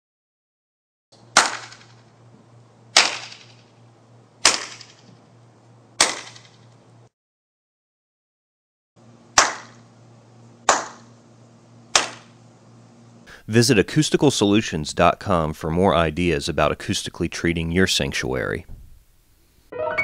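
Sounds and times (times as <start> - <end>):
hand claps with reverberation: 10.7 - 11.0.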